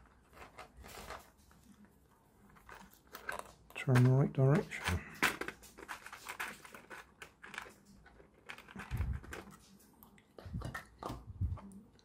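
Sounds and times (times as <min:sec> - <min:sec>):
hard plastic parts clicking and clattering: 0:02.5 - 0:09.8.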